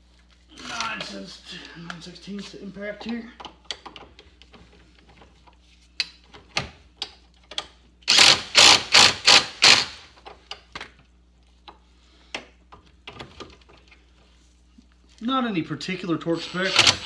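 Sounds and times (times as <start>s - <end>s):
impact driver bursts: 8.1s - 10.1s, 16.4s - 17.0s.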